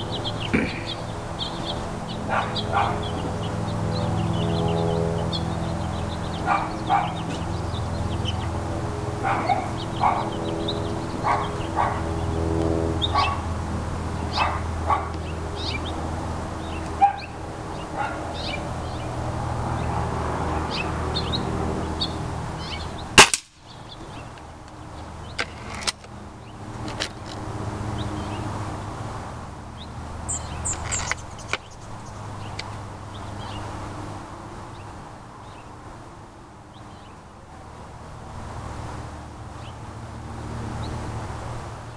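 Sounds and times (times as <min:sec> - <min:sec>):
steady low hum: 0:00.0 - 0:26.8
dog barking: 0:02.3 - 0:03.1, 0:06.4 - 0:07.2, 0:09.2 - 0:10.3, 0:11.2 - 0:12.0, 0:13.1 - 0:13.4, 0:14.3 - 0:15.1, 0:17.0 - 0:17.3, 0:18.0 - 0:18.3
air rifle shot: 0:23.2 - 0:23.6.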